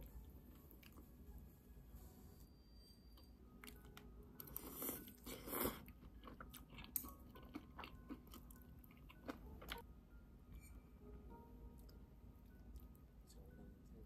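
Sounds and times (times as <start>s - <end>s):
person chewing: 3.6s - 9.8s.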